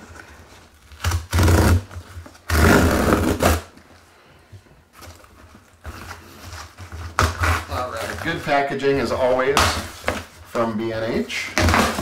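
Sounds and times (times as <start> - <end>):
packing tape tearing off cardboard: 0.0 - 3.8, 5.0 - 8.4, 11.4 - 12.0.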